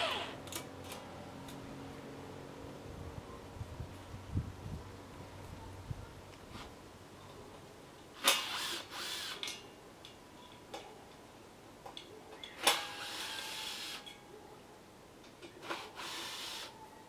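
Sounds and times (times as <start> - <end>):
cordless drill running: 0.0 - 0.4, 8.4 - 9.4, 15.6 - 16.7.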